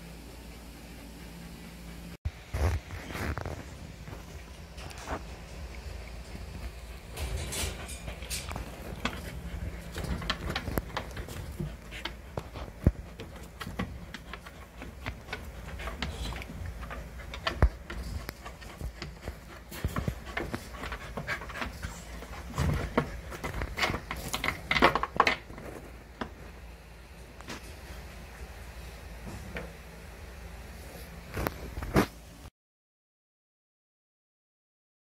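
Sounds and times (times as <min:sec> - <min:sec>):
paws scratching cardboard: 0:06.0 - 0:26.6
dog panting: 0:06.1 - 0:24.5.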